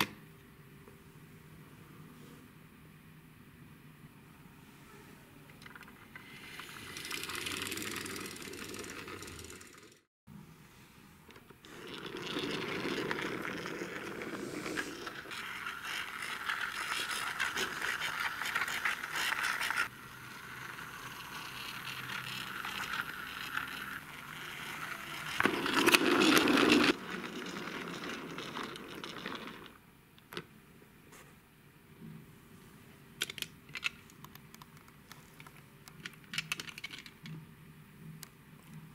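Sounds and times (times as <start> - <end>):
toy truck wheels rolling on floor: 5.6 - 10.0, 11.6 - 29.8.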